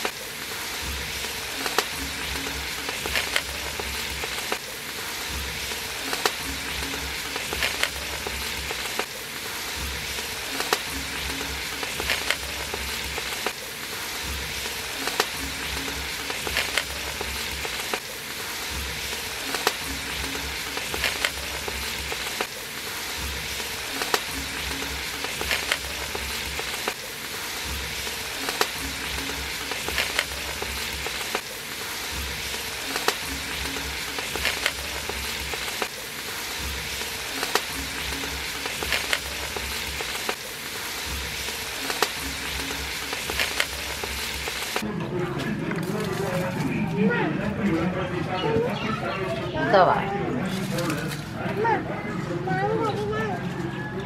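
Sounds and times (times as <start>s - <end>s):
pot boiling with sizzling hiss: 0.0s - 48.1s, 49.1s - 51.8s.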